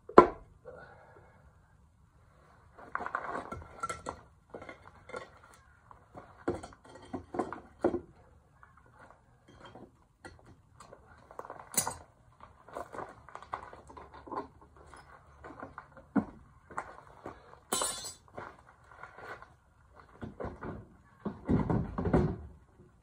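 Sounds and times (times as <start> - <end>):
metal tools clinking and clattering: 11.6 - 12.1, 17.7 - 18.3
sharp metal clank: 17.7 - 18.2.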